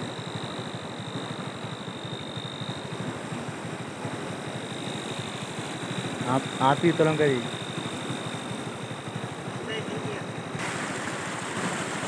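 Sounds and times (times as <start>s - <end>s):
motorcycle engine idling: 0.0s - 10.6s
high-pitched whine: 4.5s - 8.8s.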